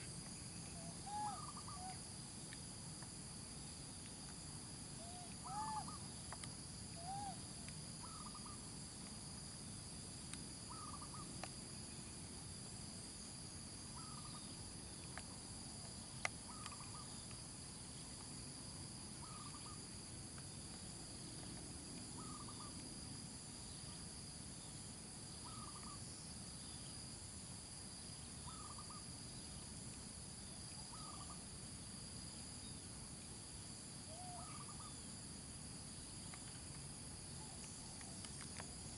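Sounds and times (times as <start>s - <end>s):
high-pitched insect chorus: 0.0s - 38.9s.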